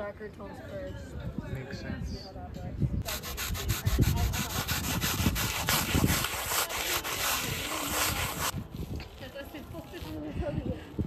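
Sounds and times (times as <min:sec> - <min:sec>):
chalk rubbing on pavement: 0:03.0 - 0:10.7.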